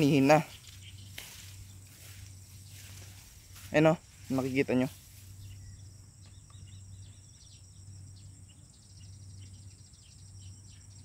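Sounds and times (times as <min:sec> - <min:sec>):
insect trill: 0:00.0 - 0:11.0.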